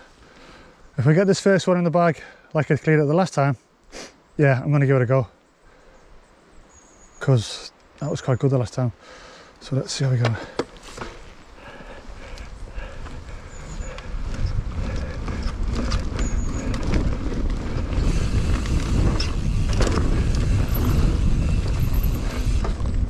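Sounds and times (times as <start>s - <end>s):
bike clicking and rattling: 10.3s - 23.0s
wind rushing over microphone: 11.2s - 23.0s.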